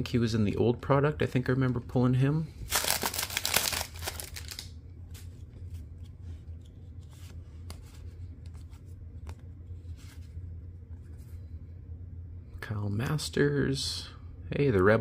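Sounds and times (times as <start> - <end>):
steady low hum: 0.0 - 15.0
cards flipped by hand: 2.7 - 10.4.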